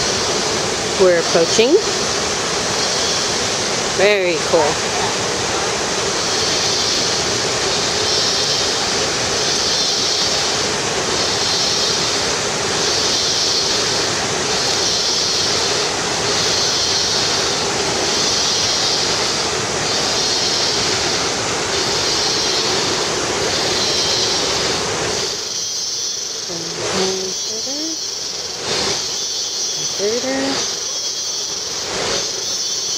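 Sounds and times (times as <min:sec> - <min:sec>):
waterfall rushing: 0:00.0 - 0:32.9
high-pitched pulsing tone: 0:26.4 - 0:31.6.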